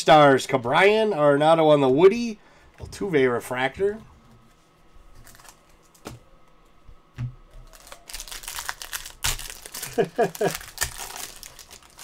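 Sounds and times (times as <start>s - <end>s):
foil wrapper crinkling: 5.2s - 6.0s, 7.6s - 12.0s.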